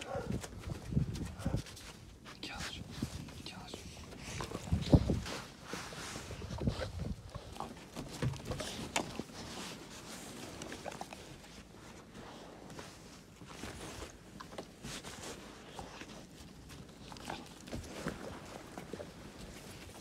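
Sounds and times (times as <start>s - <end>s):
fur and clothing rustling: 4.2s - 20.0s.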